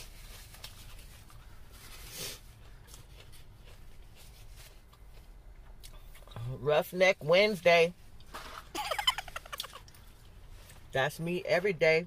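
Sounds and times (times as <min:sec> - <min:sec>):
low steady hum: 0:00.0 - 0:12.0
person chewing: 0:00.6 - 0:06.4.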